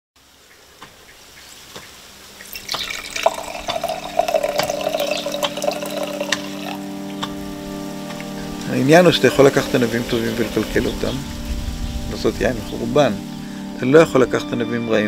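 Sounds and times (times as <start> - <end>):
liquid dripping and trickling: 0.4 - 12.3
steady low tones: 6.8 - 14.2.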